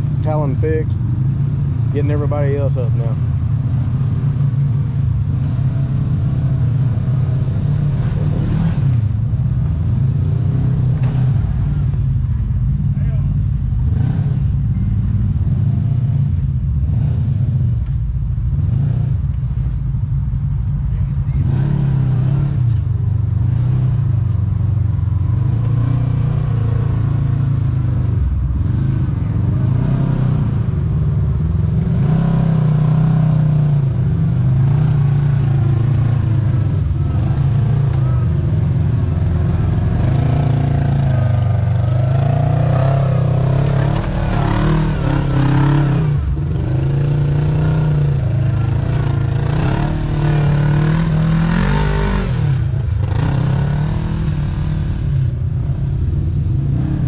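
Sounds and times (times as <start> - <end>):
engine revving: 5.2 - 11.9, 13.1 - 14.7, 15.3 - 17.8, 21.3 - 22.8, 23.4 - 24.4, 25.1 - 57.0.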